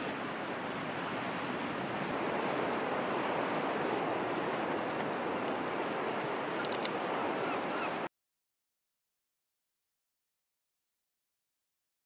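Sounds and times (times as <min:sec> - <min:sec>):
sea surf breaking: 0:00.0 - 0:08.1.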